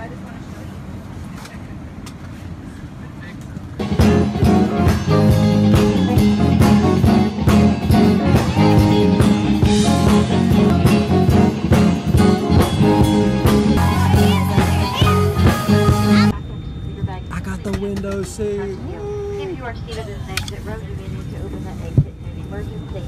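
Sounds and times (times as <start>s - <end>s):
live band playing upbeat music: 3.8s - 16.3s.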